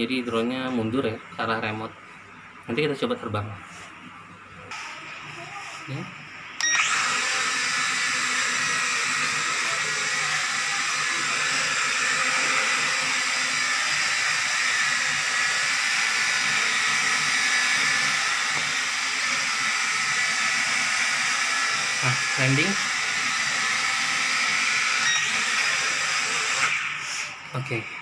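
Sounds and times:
toy drone buzzing: 6.6s - 27.4s.

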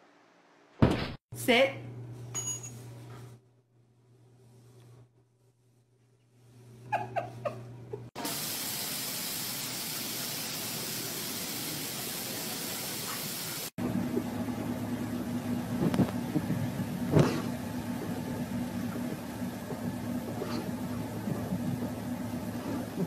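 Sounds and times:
car engine running: 13.8s - 23.0s.

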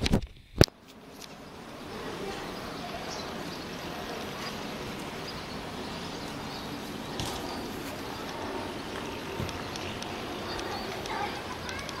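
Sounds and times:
jet engines rumbling: 0.0s - 12.0s.

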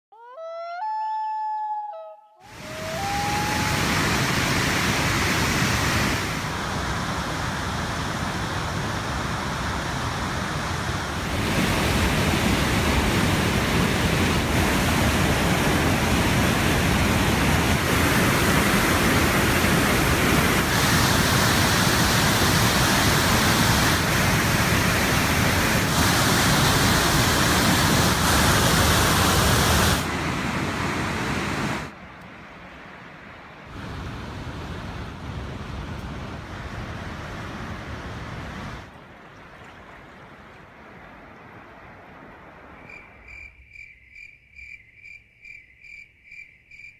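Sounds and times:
waterfall rushing: 2.4s - 32.0s.

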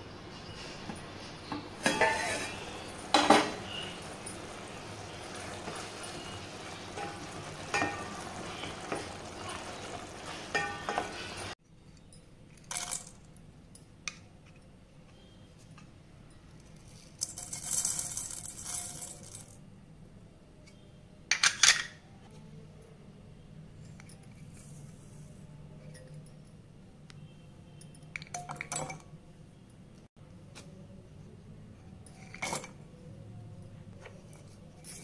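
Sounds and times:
curry simmering in a pot: 2.0s - 11.6s
spices rattling in steel jar: 16.8s - 19.6s.

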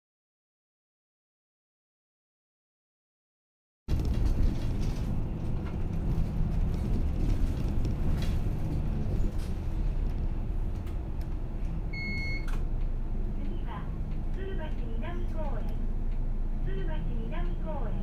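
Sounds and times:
knocks and rattles: 3.9s - 10.9s
bus engine and road rumble: 3.9s - 18.0s.

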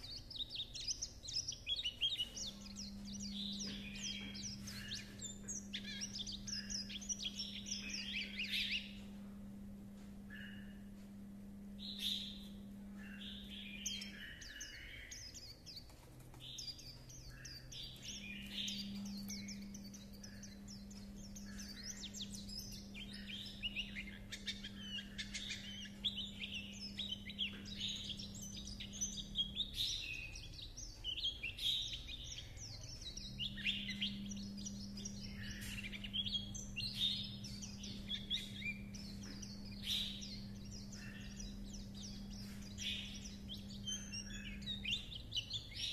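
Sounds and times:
bird chattering warble: 16.5s - 45.9s.

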